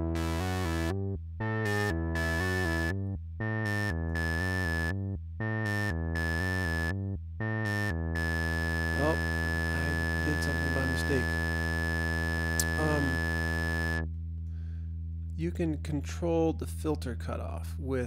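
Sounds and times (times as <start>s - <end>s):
synthesizer drone: 0.0s - 4.9s, 5.5s - 14.1s
buzzy synthesizer notes: 0.0s - 14.1s.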